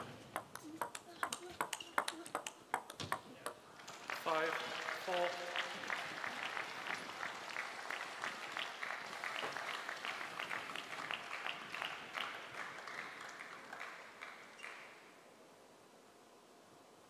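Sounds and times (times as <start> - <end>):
crowd applauding: 3.7 - 15.0.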